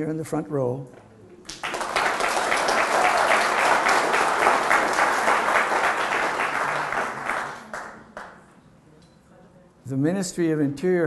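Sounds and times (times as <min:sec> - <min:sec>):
audience applauding: 0:01.5 - 0:08.4.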